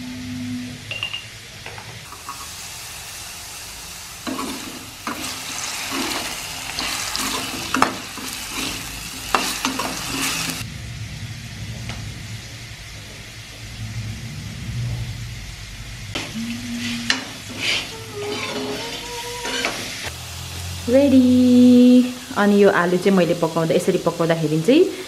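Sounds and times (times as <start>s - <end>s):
potatoes sizzling in oil: 2.0s - 10.6s, 17.1s - 25.0s
steel spoon scraping a pan: 4.2s - 10.6s, 16.6s - 20.1s.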